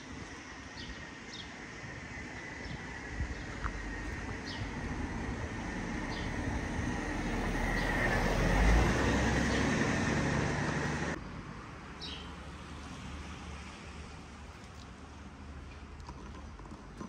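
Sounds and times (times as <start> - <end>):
vehicle passing close by: 3.1 - 11.2.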